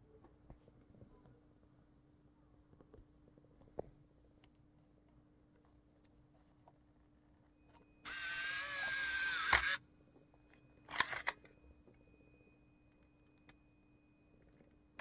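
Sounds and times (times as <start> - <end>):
tape transport motor whirring: 8.1 - 9.8.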